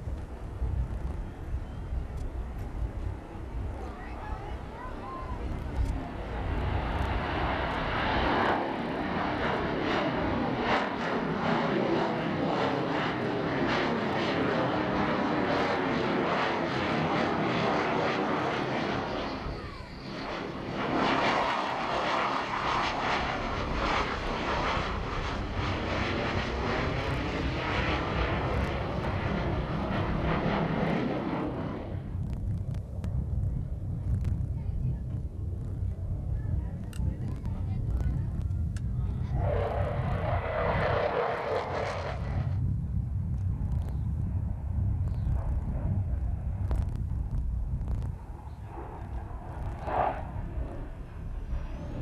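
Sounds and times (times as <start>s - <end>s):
jet engines roaring overhead: 0.0s - 52.0s.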